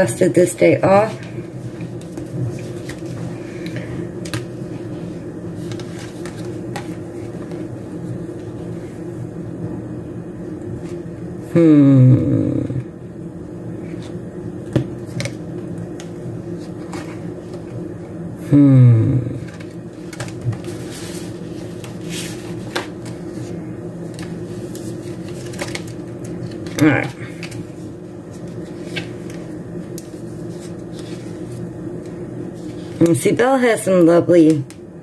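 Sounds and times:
steady low hum: 0:00.0 - 0:35.0
paper handling: 0:01.1 - 0:08.6, 0:19.5 - 0:33.2.

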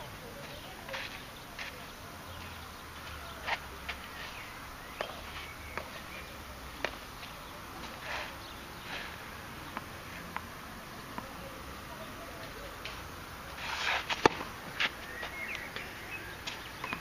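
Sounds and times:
faint outdoor background: 0:00.0 - 0:17.0
tennis ball and racket taps: 0:05.0 - 0:08.0, 0:09.6 - 0:10.5, 0:11.1 - 0:11.4, 0:14.0 - 0:17.0.

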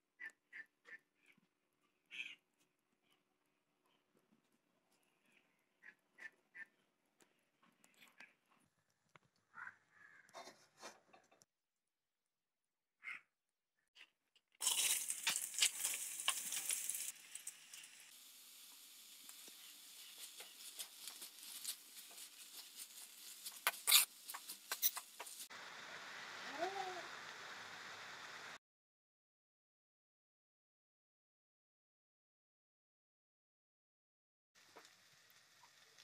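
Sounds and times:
metal spoon scraping pan: 0:14.6 - 0:17.1, 0:23.4 - 0:25.2
food sizzling and crackling in oil: 0:14.6 - 0:28.6, 0:34.6 - 0:36.0.

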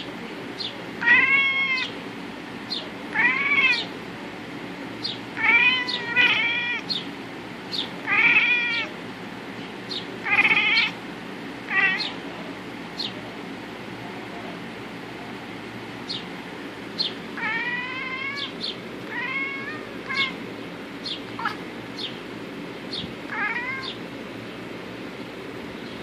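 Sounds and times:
cat meowing: 0:01.0 - 0:02.0, 0:03.1 - 0:03.9, 0:05.4 - 0:07.0, 0:08.0 - 0:08.9, 0:10.2 - 0:11.0, 0:11.7 - 0:12.2, 0:17.4 - 0:20.4, 0:21.3 - 0:21.6, 0:23.3 - 0:24.0.

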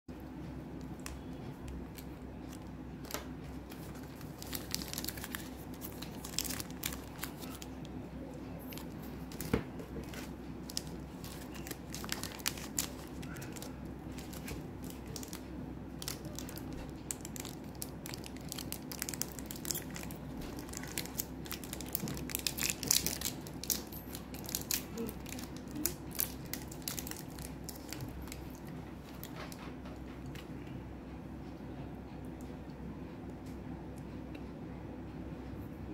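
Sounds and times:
steady low hum: 0:00.1 - 0:35.9
plastic wrappers crinkling: 0:00.8 - 0:29.6
wrapper tearing open: 0:03.7 - 0:07.7, 0:10.2 - 0:15.4, 0:16.0 - 0:29.3.

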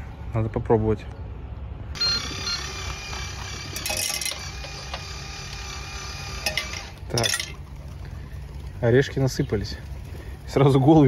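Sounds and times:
vending machine electronic whine: 0:01.9 - 0:07.0.

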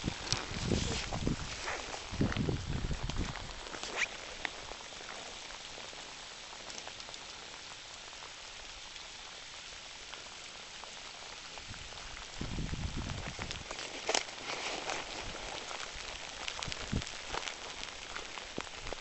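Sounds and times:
rain on leaves and gravel: 0:00.0 - 0:19.0.

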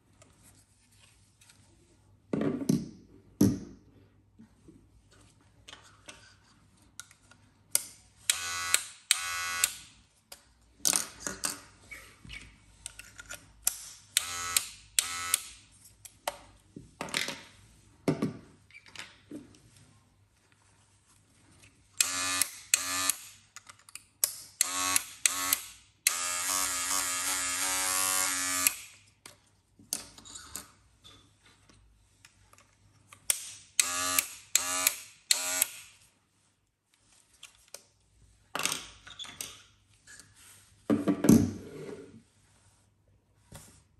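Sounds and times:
hair clippers buzzing: 0:08.3 - 0:09.8, 0:14.2 - 0:15.5, 0:22.0 - 0:23.2, 0:24.6 - 0:28.8, 0:33.8 - 0:35.8.

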